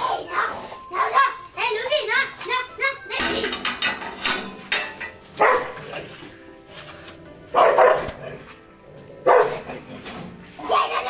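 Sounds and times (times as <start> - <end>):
background music: 0.0 - 11.0
dog barking: 5.4 - 5.9, 7.5 - 8.4, 9.2 - 9.7.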